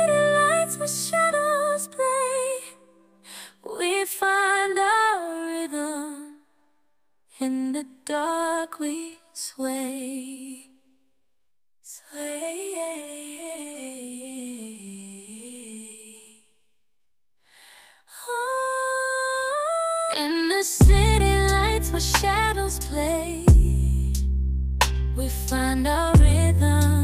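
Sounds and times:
woman's wordless singing: 0.0 - 2.9, 3.5 - 6.4, 7.3 - 10.8, 11.9 - 16.4, 18.1 - 24.1, 25.2 - 27.0
music beat: 20.8 - 22.6, 23.5 - 24.2, 26.2 - 26.9.

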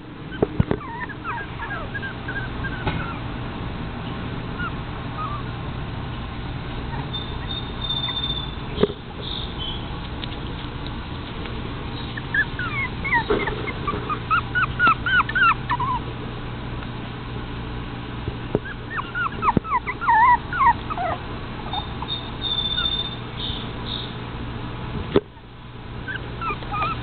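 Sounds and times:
puppies whimpering and yipping: 0.3 - 3.3, 4.6 - 5.6, 6.9 - 8.8, 12.0 - 16.1, 18.6 - 23.6, 25.4 - 27.0.

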